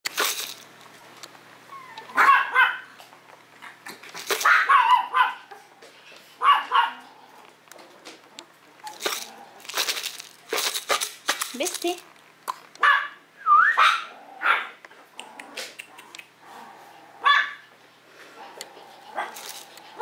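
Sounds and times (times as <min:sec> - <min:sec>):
dog barking and yipping: 0:01.8 - 0:02.9, 0:04.3 - 0:05.7, 0:06.4 - 0:07.0, 0:12.8 - 0:13.2, 0:13.8 - 0:14.8, 0:17.2 - 0:17.6, 0:19.0 - 0:20.0.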